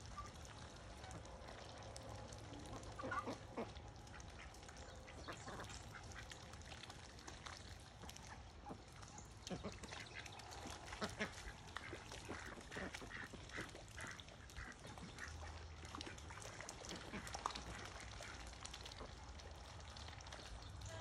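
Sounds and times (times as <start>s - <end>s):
ducks quacking: 2.7s - 6.5s, 8.4s - 19.2s.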